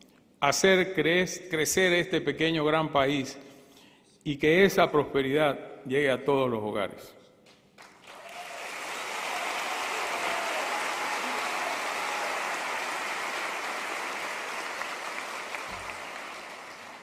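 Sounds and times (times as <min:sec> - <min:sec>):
large audience applauding: 0:07.8 - 0:17.0.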